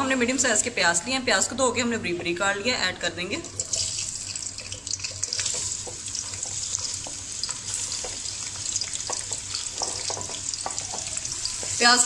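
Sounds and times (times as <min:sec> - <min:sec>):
onions sizzling in hot oil: 0:03.3 - 0:12.0
spatula clicks and taps in pan: 0:05.1 - 0:11.8.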